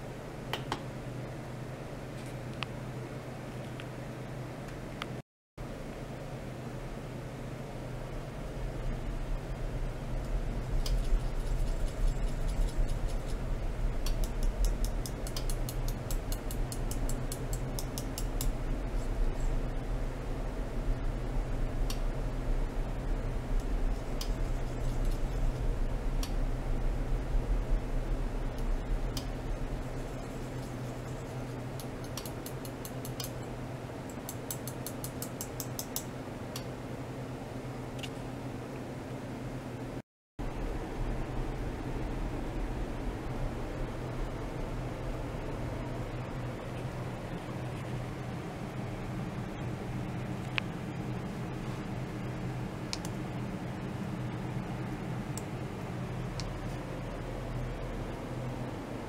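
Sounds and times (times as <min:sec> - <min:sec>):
steady low hum: 0:00.0 - 0:59.0
light ticks and clicks: 0:14.0 - 0:18.6, 0:31.8 - 0:33.4.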